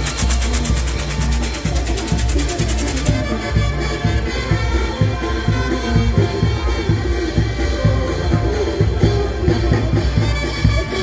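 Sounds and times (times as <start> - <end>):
fireworks crackling: 0.0 - 4.4.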